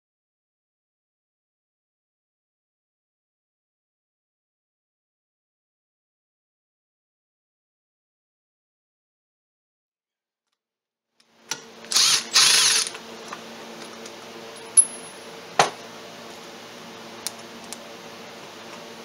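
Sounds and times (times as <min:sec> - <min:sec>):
handheld power tool running: 0:11.5 - 0:13.9.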